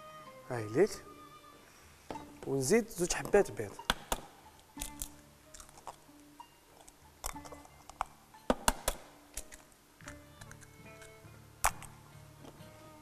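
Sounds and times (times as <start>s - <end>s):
eggshells tapped and cracked: 3.8s - 6.0s, 6.8s - 12.0s.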